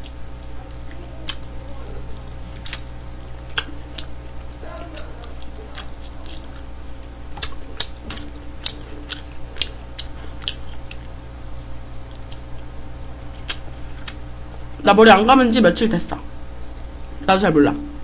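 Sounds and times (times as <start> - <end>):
chewing and lip-smacking: 0.0 - 12.7, 13.3 - 14.8
low electrical hum: 0.0 - 18.0.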